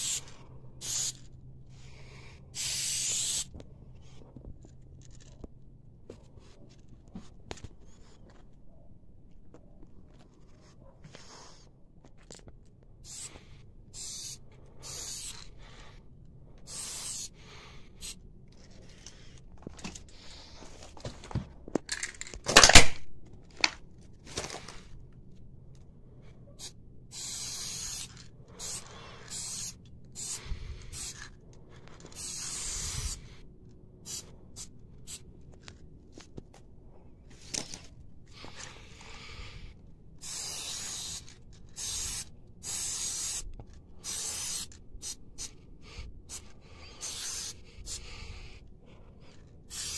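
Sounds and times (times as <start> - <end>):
spray paint can hissing: 0.0 - 3.5, 13.0 - 16.0, 16.6 - 19.3, 26.6 - 33.4, 34.0 - 35.2, 38.3 - 48.6, 49.6 - 49.9.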